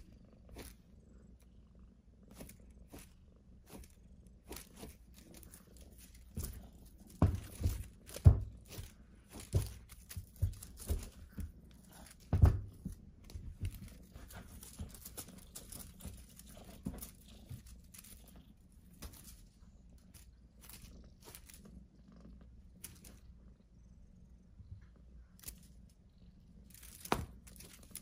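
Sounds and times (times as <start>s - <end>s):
kitten pouncing and scuffling: 2.3s - 21.7s.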